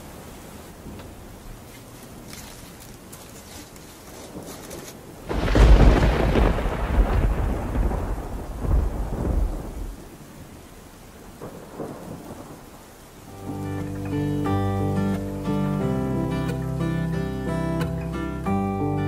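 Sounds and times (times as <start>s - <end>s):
steady rain: 0.0s - 19.0s
thunder rumbling: 5.1s - 10.6s, 11.2s - 14.0s.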